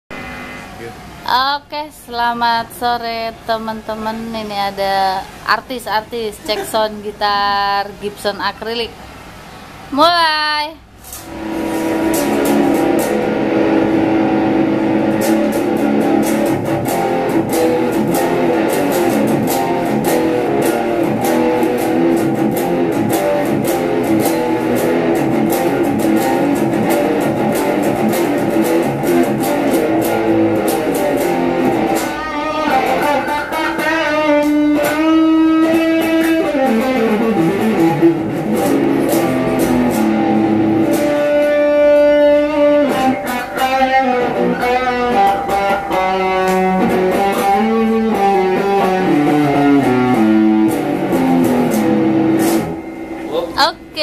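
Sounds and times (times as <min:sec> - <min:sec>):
electric guitar riffs: 0:00.1 - 0:01.3, 0:02.9 - 0:10.2, 0:10.8 - 0:54.0.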